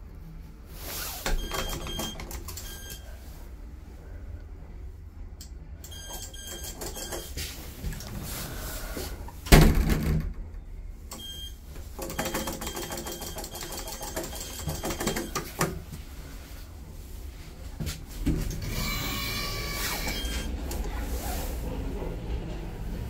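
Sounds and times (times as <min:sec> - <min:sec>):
lift machinery whir: 0:18.5 - 0:23.0.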